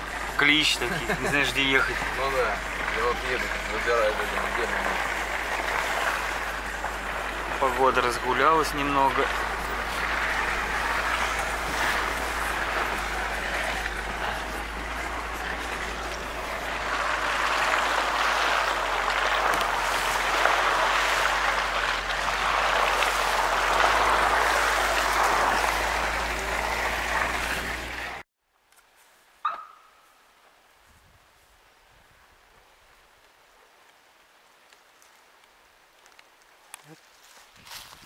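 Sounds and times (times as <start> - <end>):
car engine low hum: 0.0 - 28.2
tyres and grass brushing hiss: 0.0 - 28.2.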